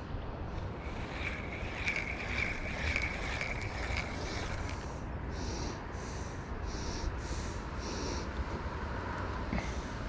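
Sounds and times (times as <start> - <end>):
wind rumble on microphone: 0.0 - 10.0
thin high tone: 0.6 - 4.9.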